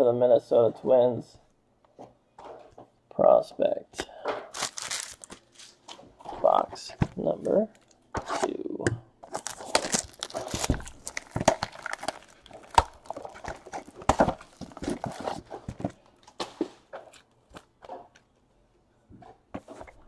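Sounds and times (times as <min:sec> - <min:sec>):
cardboard box rustling: 0:04.5 - 0:05.8, 0:09.3 - 0:17.2.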